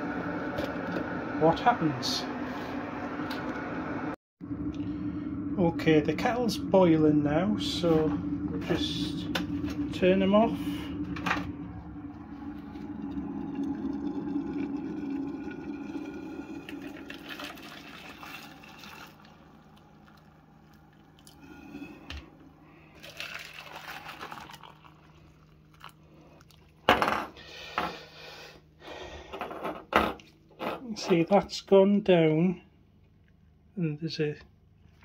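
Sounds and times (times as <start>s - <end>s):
water poured from kettle: 12.0s - 21.7s, 22.9s - 26.6s.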